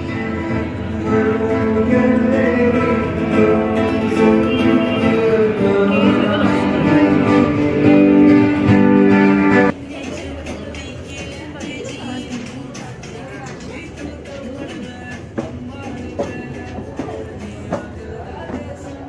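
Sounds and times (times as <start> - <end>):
guitar music: 0.0 - 9.7
person singing: 0.0 - 19.0.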